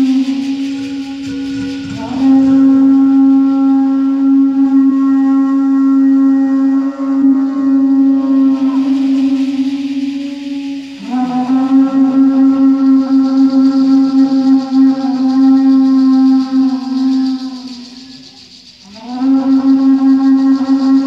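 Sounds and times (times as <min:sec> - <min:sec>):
live band music: 0:00.0 - 0:03.4
wind instrument holding long note: 0:00.0 - 0:21.0.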